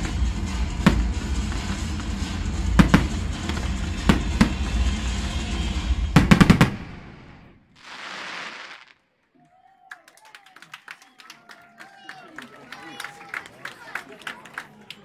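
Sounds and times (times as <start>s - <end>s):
fireworks crackling and rumbling: 0.0s - 9.1s
fireworks bangs: 0.0s - 9.2s
people clapping: 9.3s - 15.0s.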